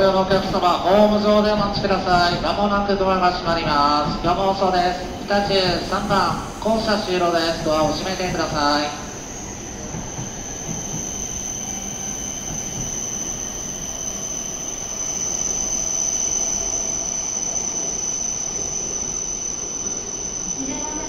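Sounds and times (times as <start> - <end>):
train running rumble: 0.0 - 13.3
train high-pitched whine: 0.0 - 21.0.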